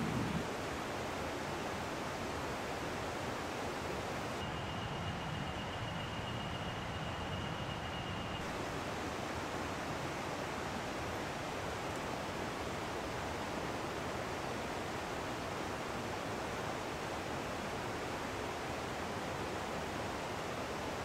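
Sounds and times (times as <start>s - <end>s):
faint high steady tone: 4.0s - 8.6s.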